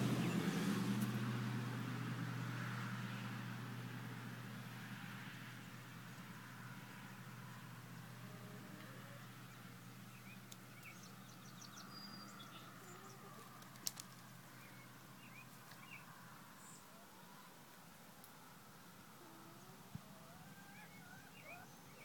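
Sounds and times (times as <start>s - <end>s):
songbird chirps: 4.9s - 22.0s
sharp clicks: 13.6s - 14.2s.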